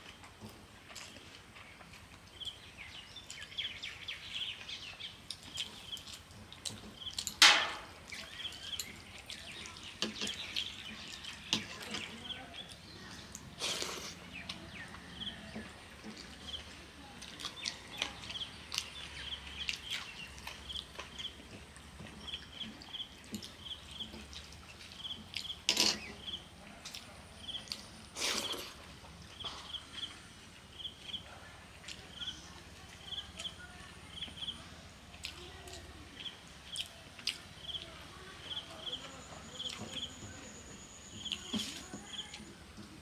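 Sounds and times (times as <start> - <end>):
chewing: 0.0 - 7.4, 8.0 - 33.6, 35.1 - 40.1
fingers squishing wet rice: 0.0 - 30.2
bird chirps: 37.6 - 42.6.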